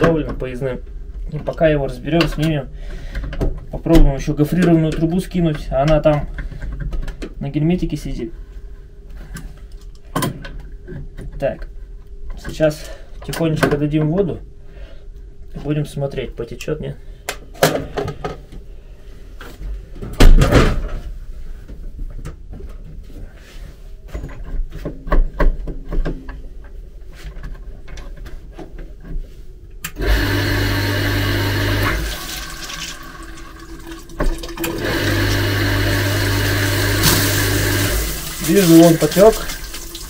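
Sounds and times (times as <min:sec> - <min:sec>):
rushing water: 0:36.4 - 0:40.0.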